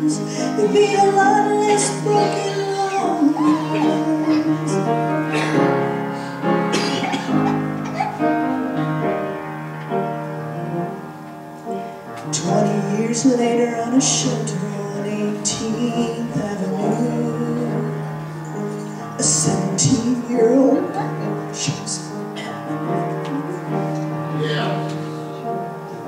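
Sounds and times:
woman singing gospel song: 0.0s - 5.0s, 12.3s - 18.1s, 19.2s - 22.1s
piano accompaniment: 0.0s - 26.0s.

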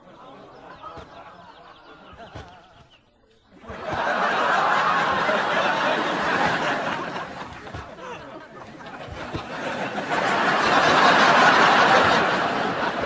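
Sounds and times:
studio audience laughing: 3.6s - 13.0s.

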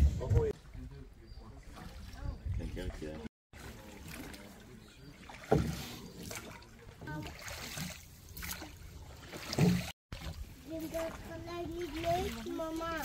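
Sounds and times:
water lapping around boat: 0.0s - 13.0s.

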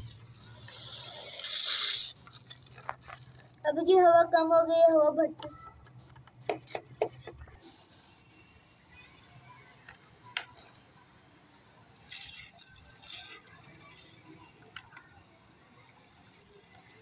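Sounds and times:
pressure sprayer hissing: 0.0s - 3.6s.

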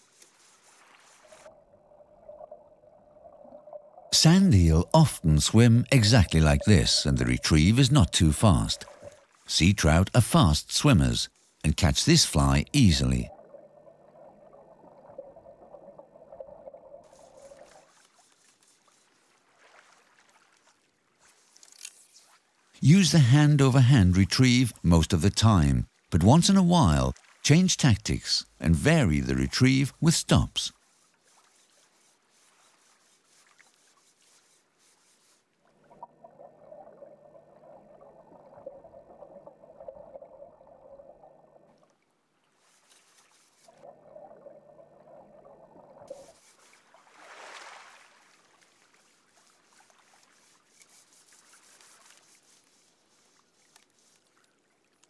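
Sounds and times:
faint hiss: 0.0s - 1.5s
water trickling underwater: 0.0s - 55.0s
underwater gurgling water: 1.3s - 9.4s, 12.4s - 18.0s, 35.6s - 42.0s, 43.6s - 46.4s
steady low hum: 4.1s - 17.5s.

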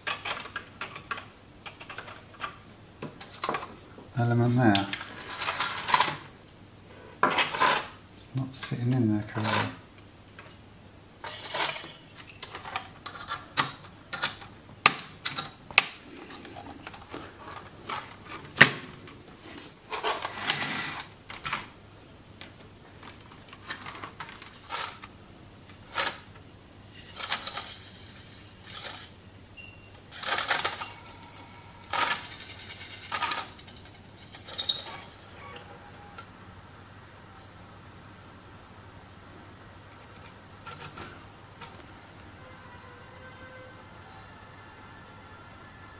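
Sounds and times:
scraping rustles: 16.0s - 21.6s.

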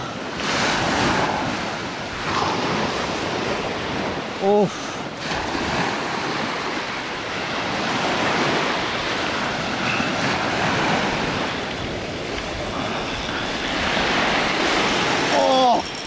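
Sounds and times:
wind on microphone: 0.0s - 4.4s, 5.1s - 16.0s
surf washing onto beach: 0.0s - 16.0s.

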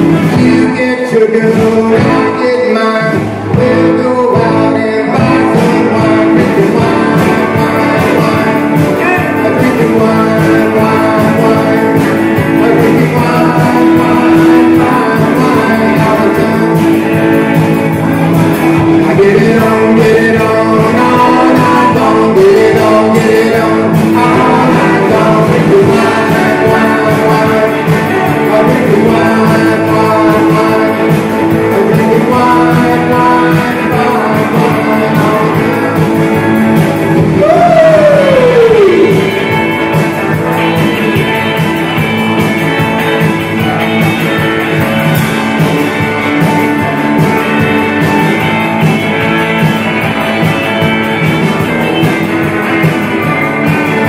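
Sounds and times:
guitar: 0.0s - 54.0s
person singing: 0.0s - 54.0s
rock band playing live: 0.0s - 54.0s.

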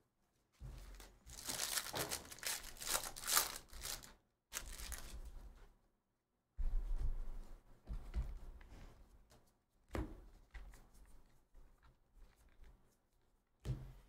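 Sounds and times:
wrapper rustling: 0.8s - 5.3s
foil wrapper tearing and crinkling: 1.3s - 5.2s.

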